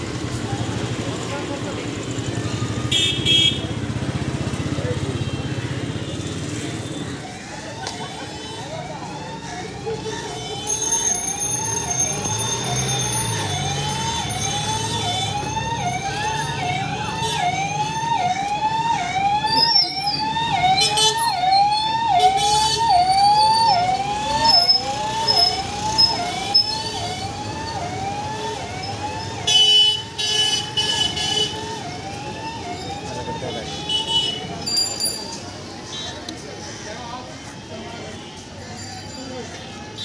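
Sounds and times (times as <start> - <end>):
low hum of street noise: 0.0 - 40.0.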